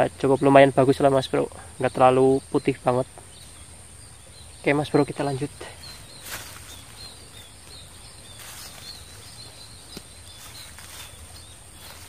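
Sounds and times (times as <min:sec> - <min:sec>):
thin steady high buzz: 0:00.0 - 0:12.0
rustling on dry reeds: 0:05.2 - 0:12.0.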